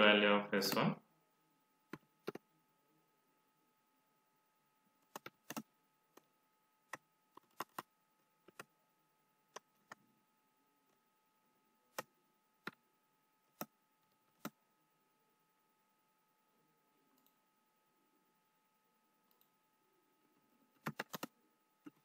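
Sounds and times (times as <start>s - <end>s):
computer keyboard keystrokes: 6.9s - 8.7s, 20.8s - 21.3s.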